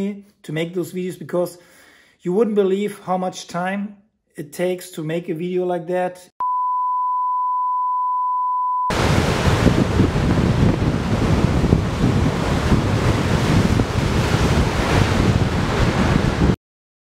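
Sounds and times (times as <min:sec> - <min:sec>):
high test-tone beep: 0:06.4 - 0:08.9
surf rushing: 0:08.9 - 0:16.6
wind buffeting microphone: 0:08.9 - 0:16.6.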